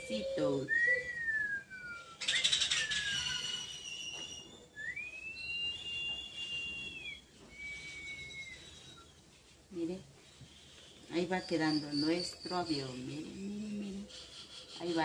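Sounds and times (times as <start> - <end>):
person whistling: 0.7 - 4.2, 4.8 - 9.2.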